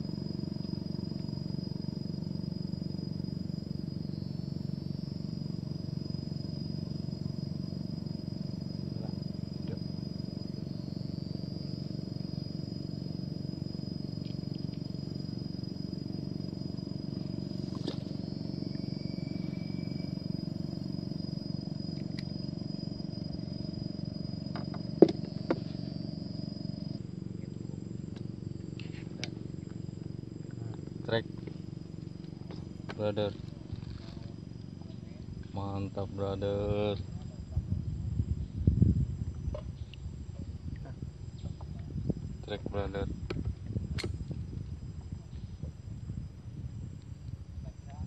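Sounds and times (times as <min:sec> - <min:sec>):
boat engine rumbling: 0:00.0 - 0:48.0
high-pitched insect buzz: 0:00.0 - 0:48.0.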